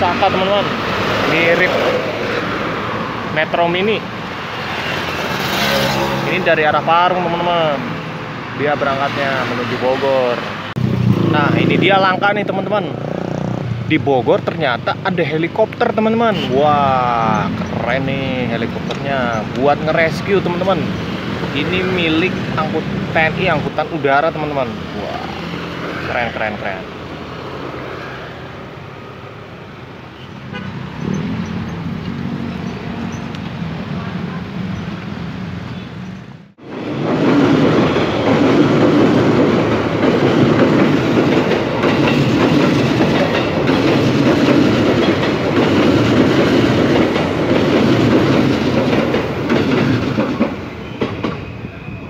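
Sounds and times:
train wheels clacking on rails: 36.7 - 51.6.

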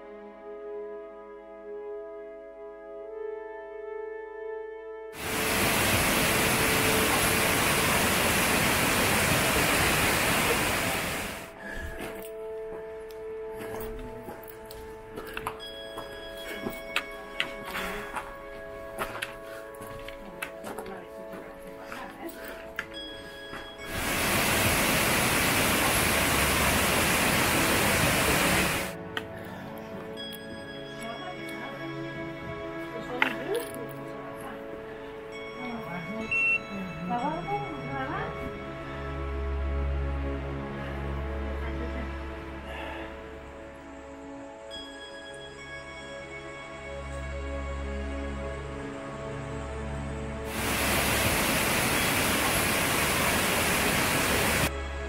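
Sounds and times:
waterfall rushing: 5.2 - 11.6, 23.9 - 29.0, 50.5 - 54.7.

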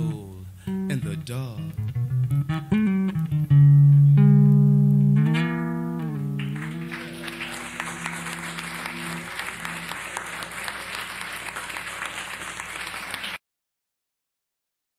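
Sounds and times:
electric bass notes ringing: 0.0 - 9.9
audience applause: 6.2 - 13.4.

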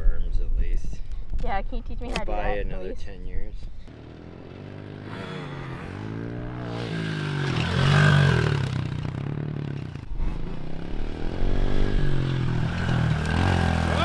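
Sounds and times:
pit bike engine revving: 3.9 - 14.0.

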